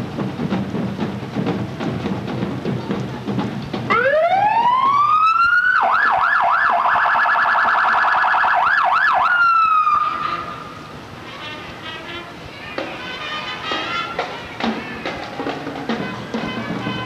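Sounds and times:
electronic siren: 3.9 - 10.4.

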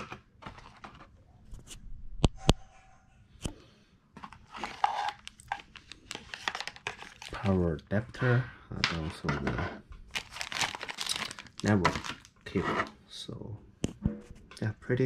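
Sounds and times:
plastic crinkling and rustling: 0.0 - 1.6, 4.2 - 7.7, 10.1 - 12.5.

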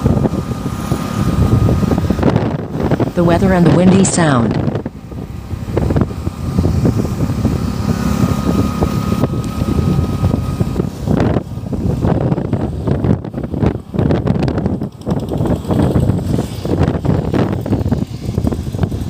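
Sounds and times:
road and traffic noise: 0.0 - 19.0
wind buffeting microphone: 0.0 - 19.0.

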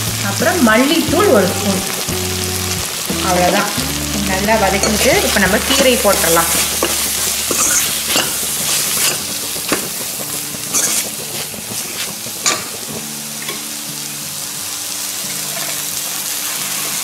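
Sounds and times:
food sizzling in a pan: 0.0 - 17.0
ladle scraping a pan: 4.8 - 10.0, 10.6 - 12.8.

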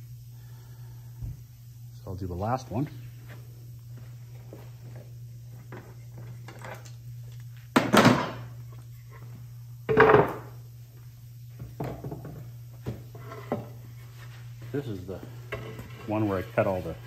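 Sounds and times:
wooden boards clunking on workbench: 7.8 - 8.5.

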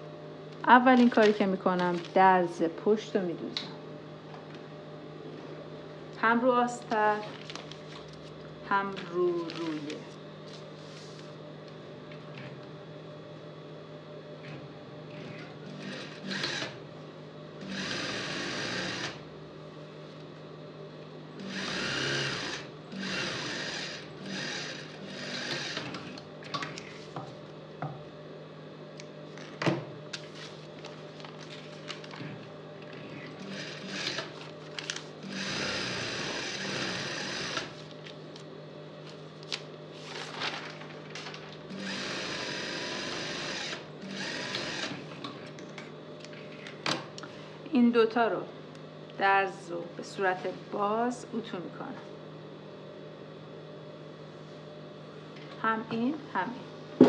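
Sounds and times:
low machine hum: 0.0 - 57.0
sewing machine stitching: 15.2 - 16.8.

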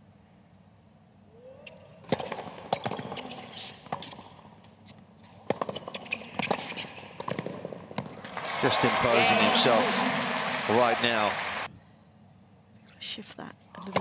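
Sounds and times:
tennis ball bouncing on court: 2.0 - 4.5, 5.4 - 8.4
tennis ball struck by rackets: 2.1 - 3.3, 5.4 - 8.2.

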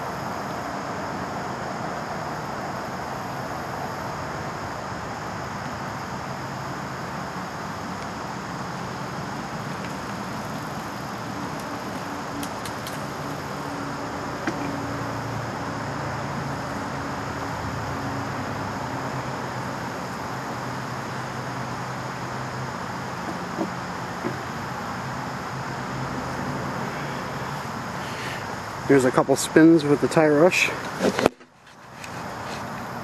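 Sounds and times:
road traffic hiss: 0.0 - 33.0.

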